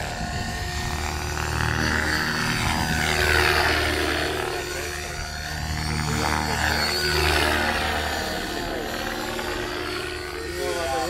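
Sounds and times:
helicopter rotor blades whooshing: 0:00.0 - 0:11.0
steady drive hum: 0:00.0 - 0:11.0.

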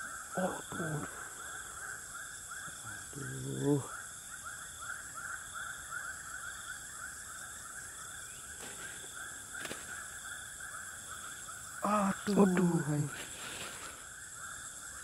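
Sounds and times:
insects buzzing and chirping: 0:00.0 - 0:15.0.

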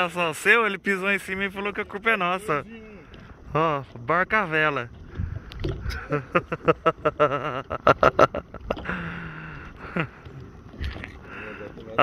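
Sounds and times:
men laughing: 0:05.8 - 0:11.7.

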